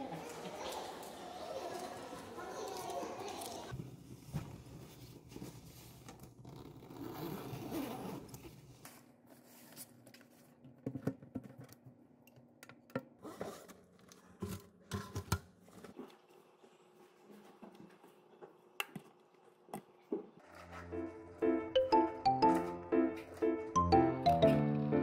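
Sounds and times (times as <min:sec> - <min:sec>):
canvas bag rustling and zipping: 0:06.5 - 0:08.4.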